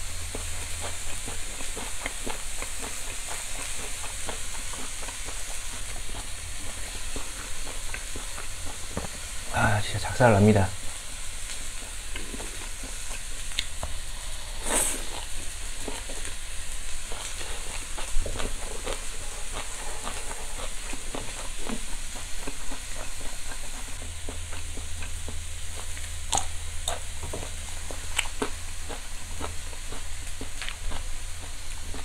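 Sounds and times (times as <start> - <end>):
close-up chewing: 0.0 - 32.0
steak sizzling on charcoal grill: 0.0 - 32.0.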